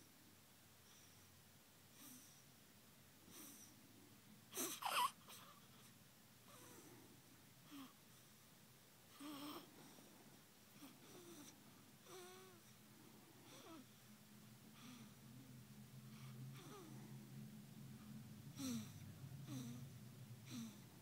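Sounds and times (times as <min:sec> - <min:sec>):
baby grunts and snuffles: 0:04.6 - 0:05.6, 0:18.6 - 0:19.8, 0:20.5 - 0:20.8
baby high squeak: 0:04.7 - 0:05.2
baby breathing: 0:18.5 - 0:20.9.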